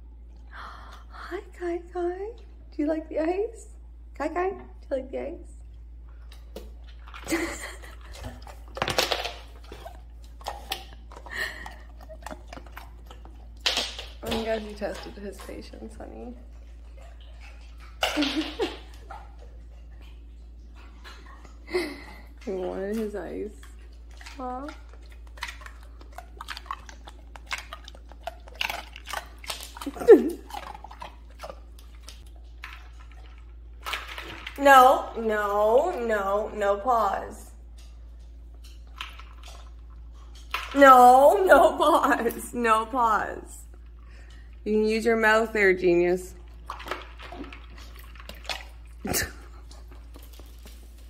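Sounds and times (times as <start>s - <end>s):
dog crunching ice cubes: 6.4s - 15.4s, 23.7s - 34.6s, 46.5s - 51.0s.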